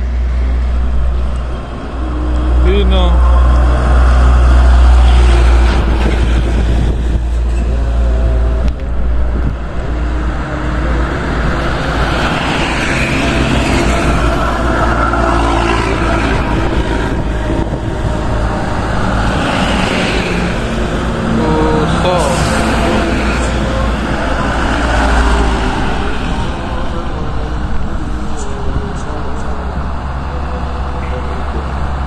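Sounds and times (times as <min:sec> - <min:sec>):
heavy truck rumble: 0:00.0 - 0:32.0
trucks passing on highway: 0:00.0 - 0:32.0.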